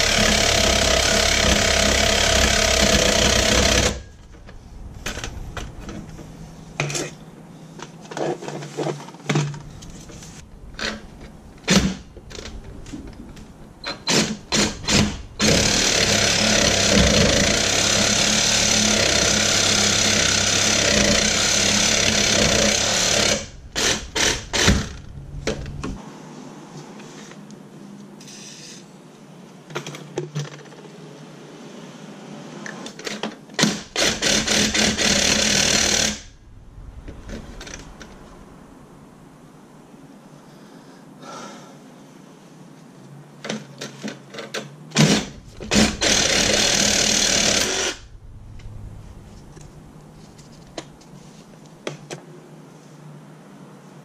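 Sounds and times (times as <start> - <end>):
reciprocating saw cutting metal: 0.0 - 4.3, 13.8 - 25.2, 33.6 - 36.4, 45.0 - 48.2.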